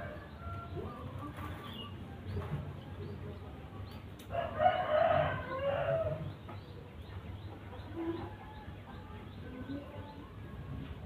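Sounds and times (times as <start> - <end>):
rooster crowing: 4.3 - 6.2.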